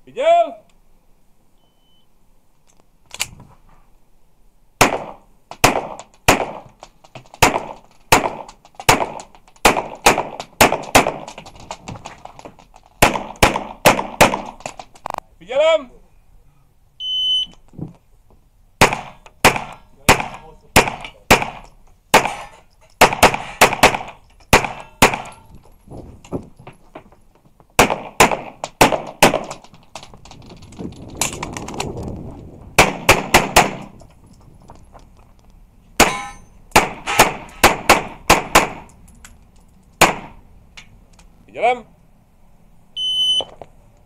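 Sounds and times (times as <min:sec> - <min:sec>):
pistol shots: 0:04.8 - 0:11.4, 0:13.0 - 0:14.8, 0:18.8 - 0:25.4, 0:27.8 - 0:29.6, 0:32.8 - 0:34.0, 0:36.0 - 0:38.9, 0:40.0 - 0:40.4
shot timer beep: 0:17.0 - 0:17.5, 0:43.0 - 0:43.5.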